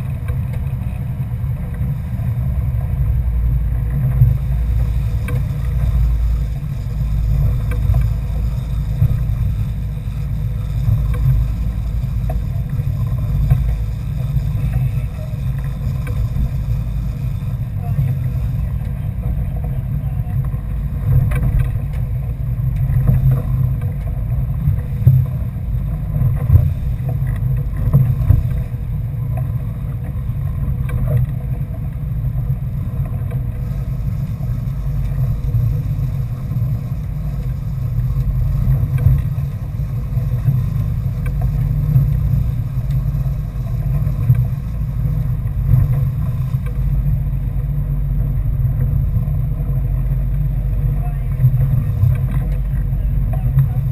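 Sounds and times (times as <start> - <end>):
boat engine running: 0.0 - 53.9
wind and water rushing: 0.0 - 53.9.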